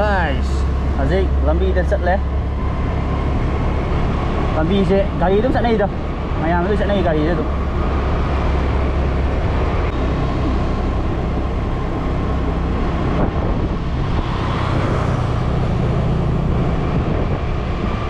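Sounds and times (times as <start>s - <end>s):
wind noise on microphone: 7.6s - 18.0s.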